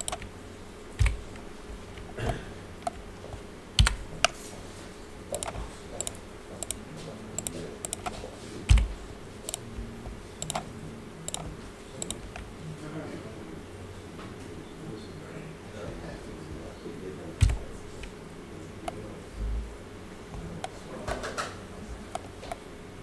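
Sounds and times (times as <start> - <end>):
keyboard and mouse clicking: 0.0 - 0.3, 1.0 - 2.2, 2.8 - 4.4, 5.3 - 6.8, 7.4 - 9.6, 10.4 - 10.7, 11.3 - 12.5, 17.4 - 18.2, 22.1 - 22.6
dull thumps: 1.0 - 2.2, 8.7 - 9.0, 17.4 - 17.7.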